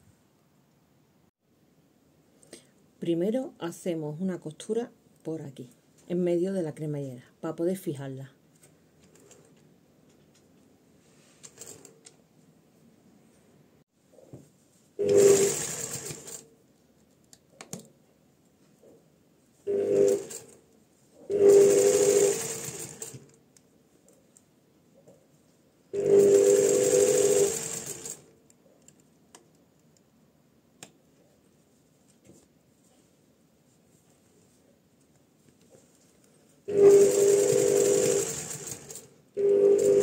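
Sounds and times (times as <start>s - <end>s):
electric sewing machine stitching: 15.0s - 16.4s, 19.7s - 20.6s, 21.3s - 23.3s, 26.0s - 28.3s, 36.7s - 40.0s.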